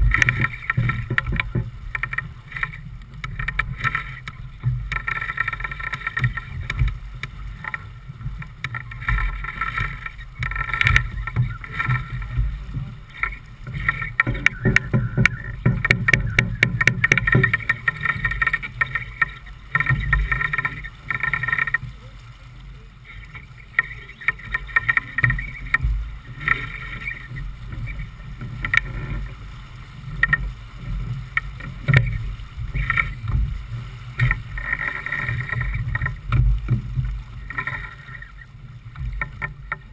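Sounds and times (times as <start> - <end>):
rapid clicks: 0.0 - 7.8, 8.4 - 21.9
water rushing along hull: 0.0 - 39.9
wind buffeting microphone: 0.0 - 39.9.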